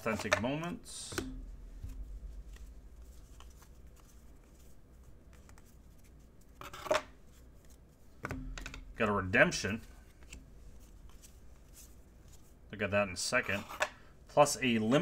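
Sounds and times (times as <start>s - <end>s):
cards clicking and sliding: 0.0s - 8.8s, 9.9s - 12.4s
cards rustling: 0.0s - 12.6s.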